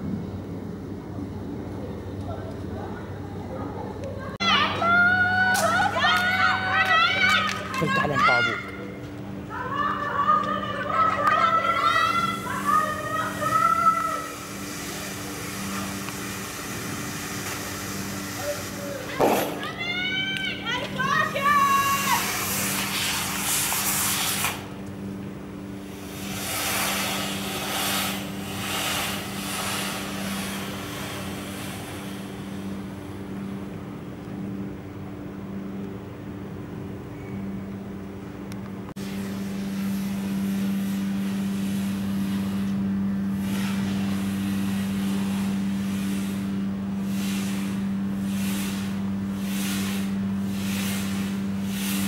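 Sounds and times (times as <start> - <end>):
low mechanical hum: 0.0 - 52.0
hiss: 11.4 - 20.4, 21.1 - 24.9, 25.8 - 33.8, 39.0 - 52.0.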